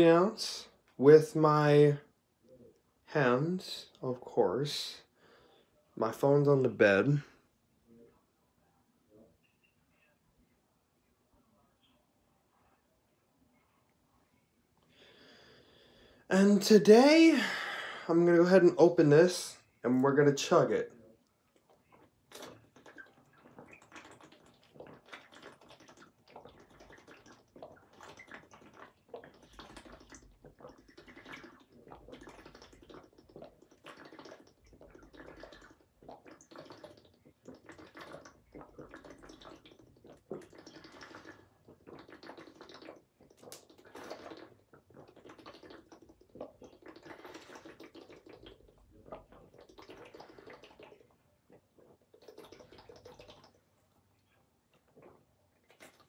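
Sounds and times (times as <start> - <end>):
person gulping water: 21.5 - 56.0.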